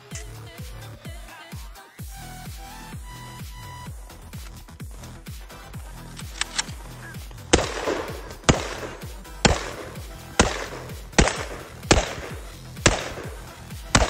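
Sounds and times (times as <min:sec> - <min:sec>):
electronic music with steady beat: 0:00.0 - 0:14.0
rifle shots with ringing echo: 0:06.2 - 0:14.0.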